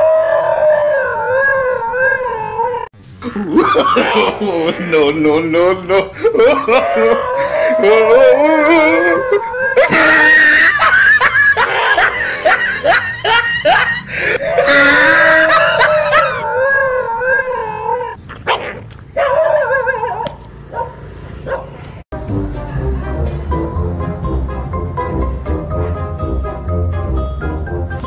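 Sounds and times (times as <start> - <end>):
dog barking and yelping: 11.3 - 21.8.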